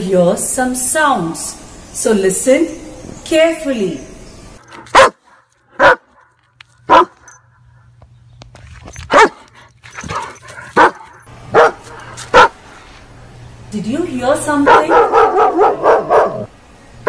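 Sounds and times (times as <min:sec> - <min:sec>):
dog barking: 0:04.7 - 0:07.4, 0:09.0 - 0:12.6, 0:14.6 - 0:16.5.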